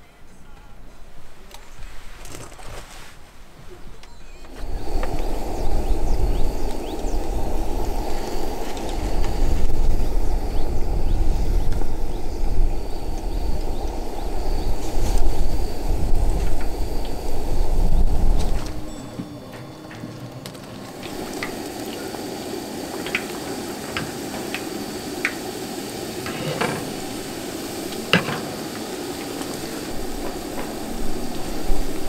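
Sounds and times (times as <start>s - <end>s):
food deep-frying in oil: 20.4s - 32.0s.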